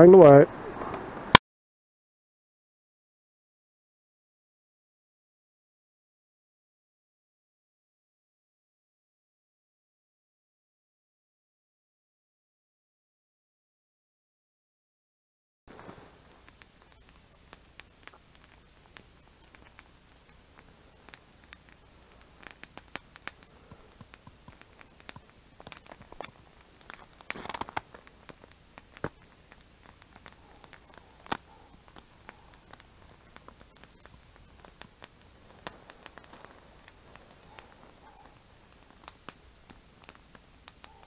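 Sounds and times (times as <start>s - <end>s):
campfire crackling: 0.0s - 1.4s, 15.7s - 41.0s.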